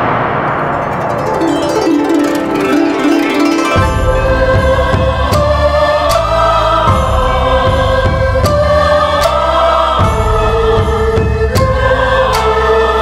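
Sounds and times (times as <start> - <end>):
choir-like voices: 1.0 - 13.0.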